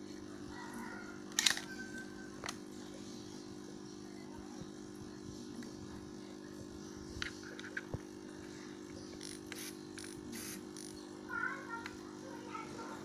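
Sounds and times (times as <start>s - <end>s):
camera clicks: 1.3s - 1.7s.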